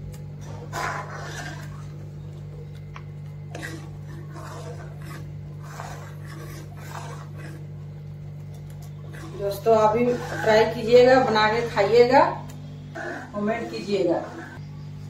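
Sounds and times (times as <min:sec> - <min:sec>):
steel ladle scraping a pan: 0:03.5 - 0:07.7, 0:09.0 - 0:12.3.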